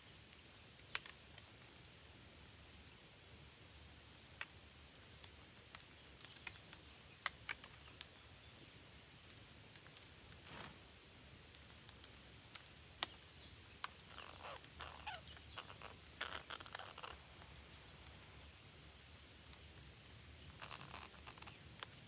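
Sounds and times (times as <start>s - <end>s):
faint sharp clicks: 0.2s - 1.7s, 4.2s - 10.8s, 11.4s - 18.6s, 19.4s - 22.0s
parrots chirping: 12.0s - 18.6s, 20.3s - 22.0s.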